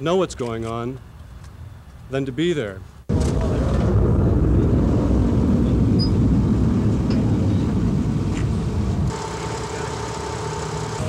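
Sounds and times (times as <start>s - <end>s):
engines rumbling: 2.8s - 11.0s.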